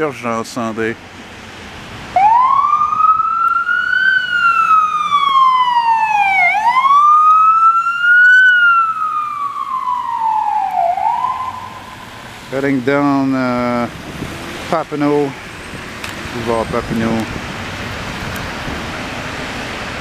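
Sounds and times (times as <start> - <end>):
ambulance siren wailing: 2.1 - 12.4.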